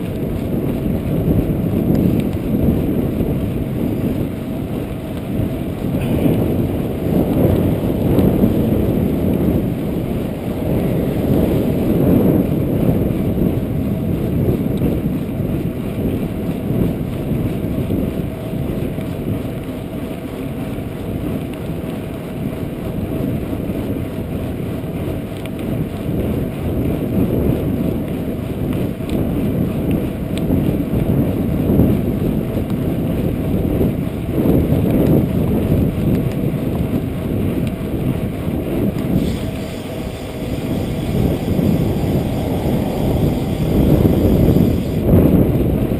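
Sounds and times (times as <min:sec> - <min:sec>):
wind buffeting microphone: 0:00.0 - 0:45.9.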